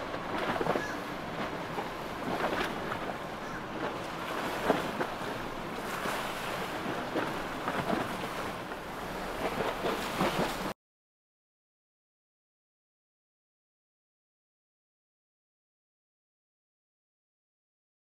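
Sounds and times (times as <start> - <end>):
boats: 0.0 - 10.8
water: 0.0 - 10.8.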